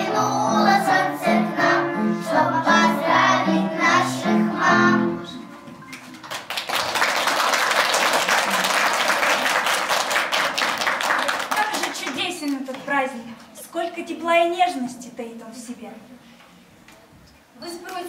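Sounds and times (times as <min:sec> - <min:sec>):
children singing in unison: 0:00.0 - 0:05.5
audience applause: 0:05.9 - 0:12.3.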